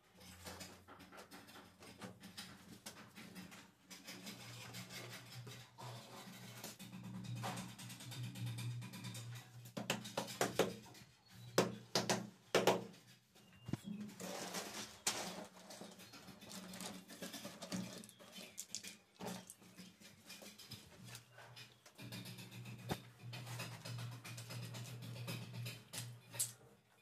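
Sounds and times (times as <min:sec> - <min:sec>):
scraping on tiles: 0:13.1 - 0:26.6.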